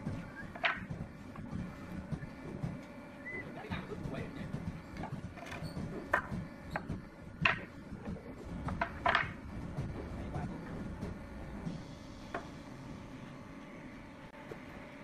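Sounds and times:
woodworking knocks and taps: 0.0 - 11.7, 12.3 - 12.6.

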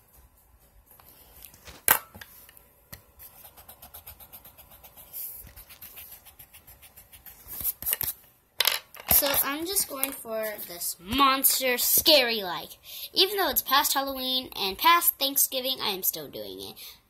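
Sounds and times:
pencil scratching on paper: 3.2 - 8.1.

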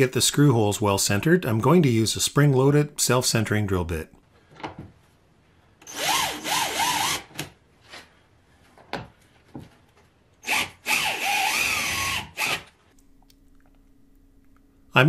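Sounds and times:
cordless drill drilling: 5.8 - 7.3, 10.4 - 12.7.

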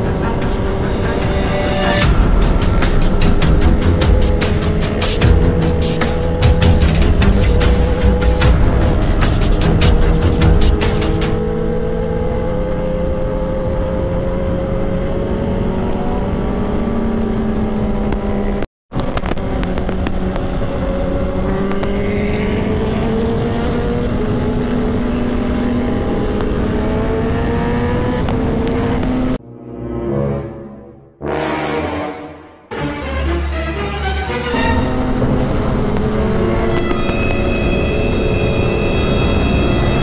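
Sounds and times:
motorcycle engine running: 0.0 - 29.4.

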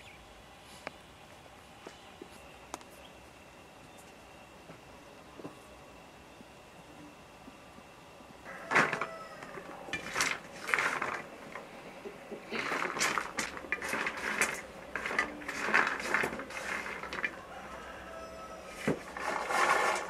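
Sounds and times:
nut pieces clattering on metal tray: 9.9 - 11.6, 12.6 - 17.4.

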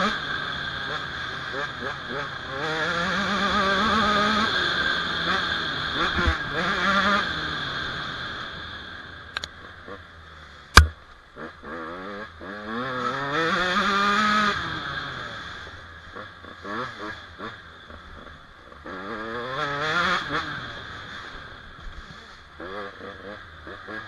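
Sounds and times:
small engine revving: 0.0 - 10.0, 10.7 - 24.0
sharp knock: 10.8 - 11.0.

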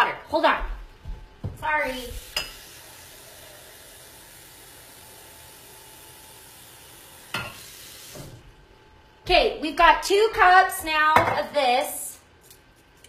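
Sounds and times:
kitchen tap running: 1.7 - 8.5.

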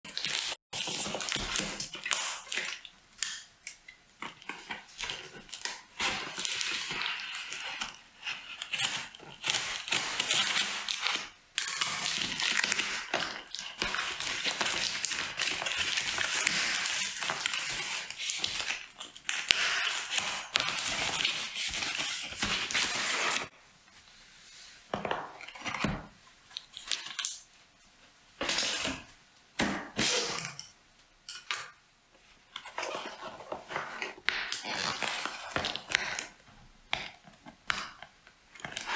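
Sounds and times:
scissors cutting packing tape: 5.0 - 23.5.

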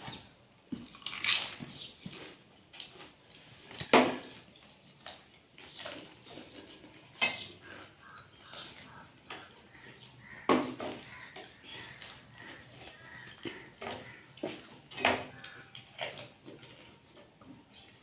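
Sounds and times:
faint eating noises: 0.0 - 18.0
steel tumblers and plates clinking: 5.6 - 10.1.

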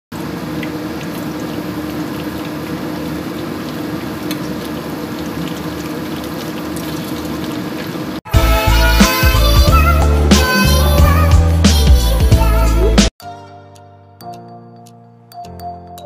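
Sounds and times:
fritters sizzling in hot oil: 0.2 - 8.2.

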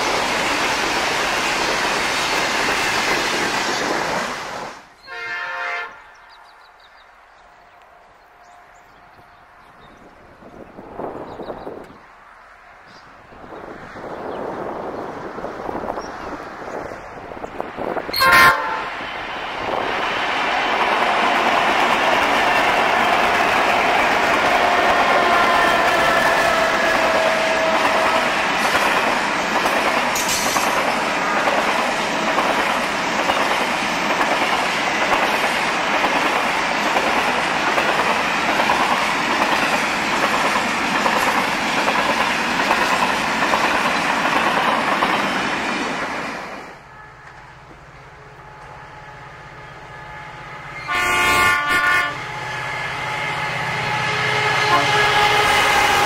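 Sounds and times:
wagon wheels rumbling on rail: 0.0 - 5.0, 12.8 - 49.1
diesel locomotive hum: 0.0 - 56.0
locomotive multi-tone horn: 5.0 - 6.1, 18.1 - 19.0, 22.8 - 28.6, 31.1 - 31.8, 46.8 - 56.0.

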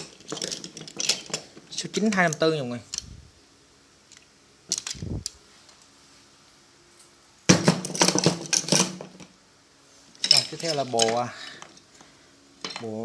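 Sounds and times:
metal hand tools clattering: 0.0 - 2.4.

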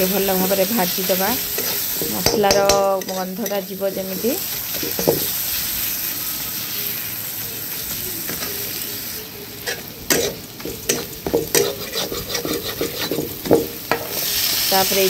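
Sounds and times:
masala sizzling in a pan: 0.0 - 15.0
spatula scraping and knocking pan: 1.4 - 5.4, 9.6 - 14.3.

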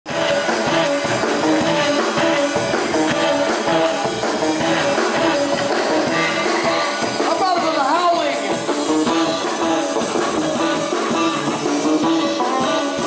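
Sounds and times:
drum kit beat: 0.1 - 13.0
electric guitar: 0.1 - 13.0.

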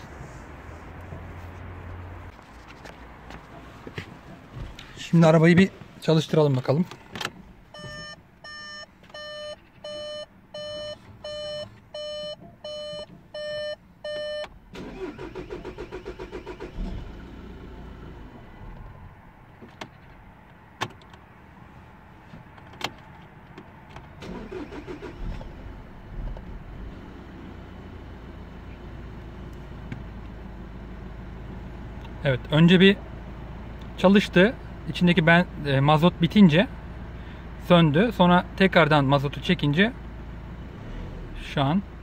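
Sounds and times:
diesel engine running: 0.0 - 8.0
dashboard warning chime beeping: 7.7 - 15.0.

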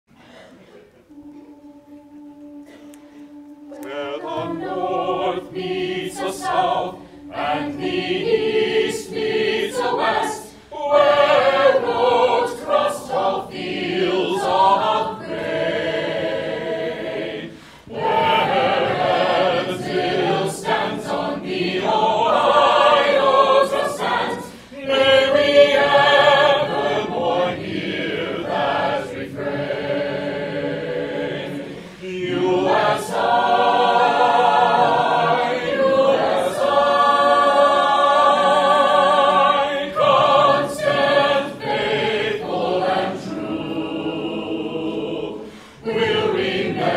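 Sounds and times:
choir singing: 0.2 - 46.9.

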